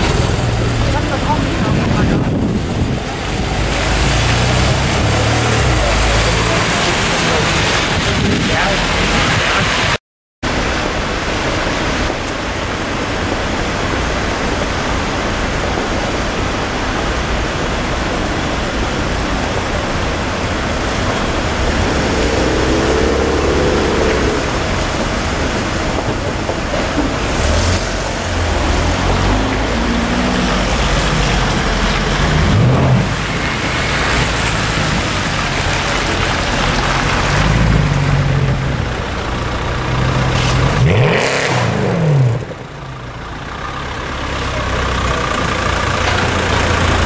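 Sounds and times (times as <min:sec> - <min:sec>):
car engine revving: 0:00.0 - 0:09.9, 0:20.4 - 0:26.0, 0:27.1 - 0:42.8
city traffic noise: 0:00.0 - 0:47.0.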